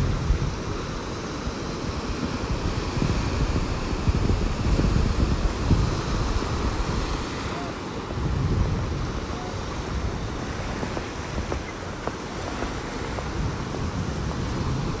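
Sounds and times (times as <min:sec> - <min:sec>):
waves breaking on beach: 0:00.0 - 0:15.0
wind buffeting microphone: 0:00.0 - 0:15.0.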